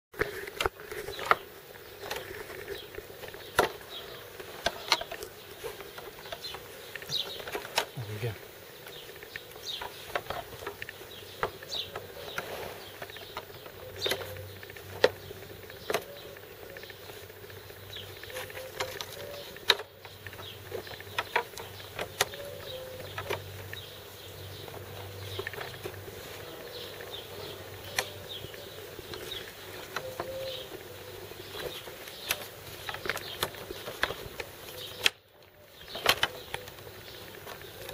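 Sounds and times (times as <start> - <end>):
faint steady hum: 0.2 - 37.9
wooden frame parts clicking: 2.0 - 8.0, 8.8 - 17.2, 18.0 - 37.9.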